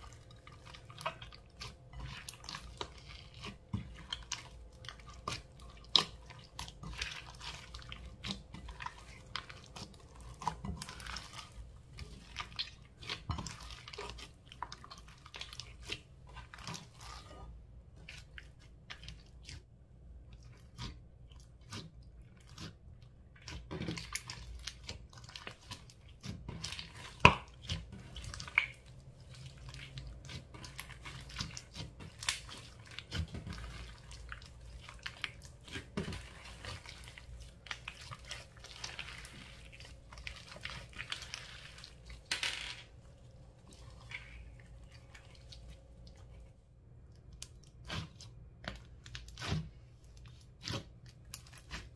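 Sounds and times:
slime squished by hand: 47.2s - 51.9s.

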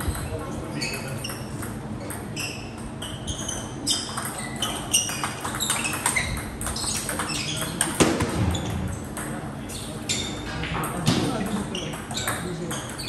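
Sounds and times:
table tennis balls clicking: 1.0s - 9.5s.

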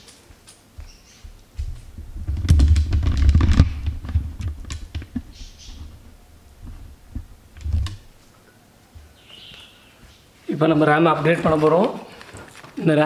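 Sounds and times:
thumps handling laptop: 1.6s - 8.1s.

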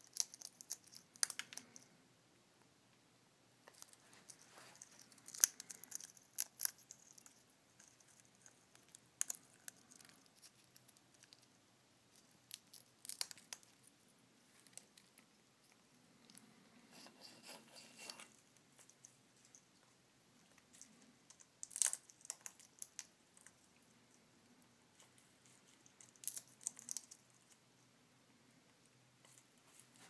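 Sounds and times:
parrot cracking seeds: 0.0s - 1.9s, 3.7s - 11.5s, 12.2s - 13.9s, 20.8s - 23.6s, 25.9s - 27.3s.

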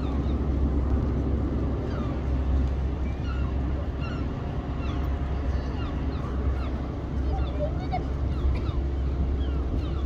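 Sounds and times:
traffic rumble: 0.0s - 10.0s
wind: 0.0s - 10.0s.

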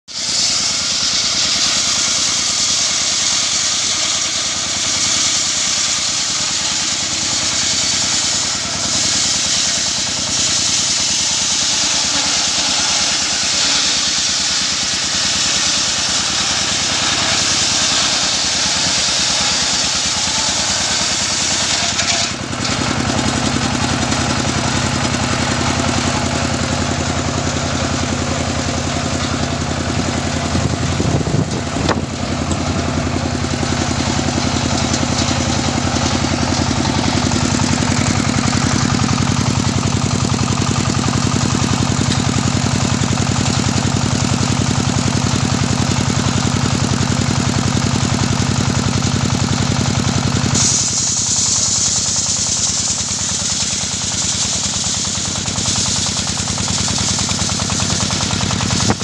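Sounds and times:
circular saw ripping through log: 0.1s - 59.0s
diesel engine running: 0.1s - 59.0s.

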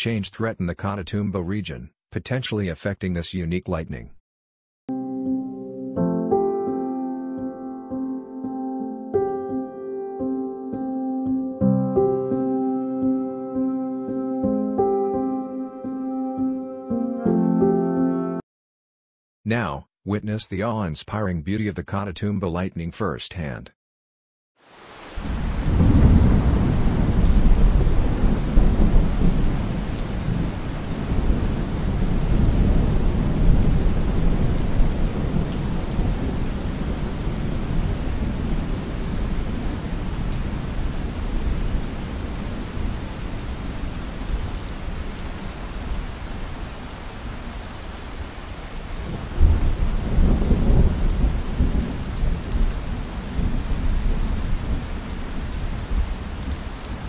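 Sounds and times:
steady rain: 24.6s - 57.0s
rolling thunder: 25.2s - 41.8s, 49.0s - 54.9s.

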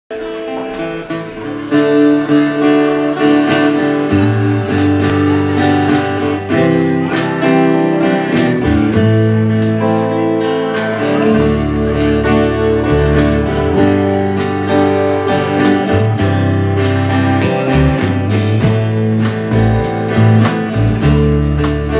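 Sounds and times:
electric guitars: 0.1s - 21.9s
strummed acoustic guitar: 0.1s - 21.9s
drums: 3.4s - 21.9s
bass line: 3.5s - 10.0s, 11.0s - 21.9s.

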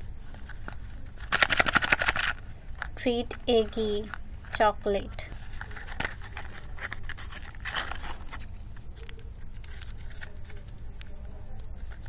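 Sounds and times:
cardboard and foil crinkling: 0.4s - 2.4s, 5.4s - 12.0s.

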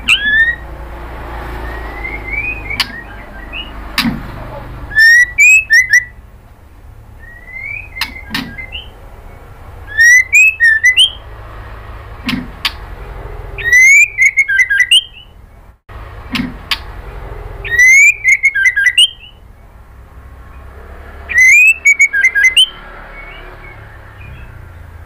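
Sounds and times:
bird singing whistled phrases: 0.0s - 0.6s, 1.5s - 3.8s, 4.9s - 6.2s, 7.2s - 9.0s, 9.9s - 11.2s, 13.6s - 15.3s, 17.6s - 19.4s, 21.3s - 24.6s.

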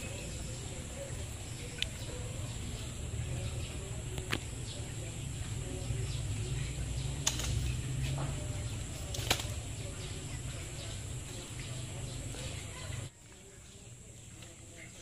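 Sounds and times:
sharp slaps: 7.2s - 7.8s
rustling on dry leaves: 7.2s - 15.0s.

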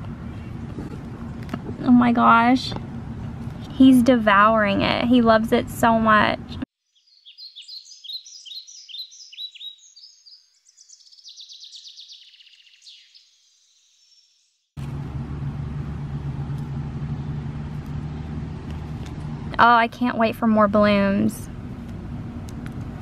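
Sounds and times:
low hum: 0.0s - 6.6s, 14.8s - 23.0s
songbird chirping: 6.8s - 14.8s, 15.6s - 19.6s.

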